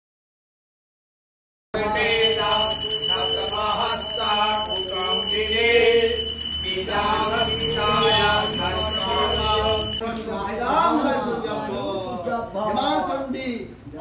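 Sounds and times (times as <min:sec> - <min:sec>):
hand bell ringing: 0:01.8 - 0:10.0
men chanting: 0:01.8 - 0:13.1.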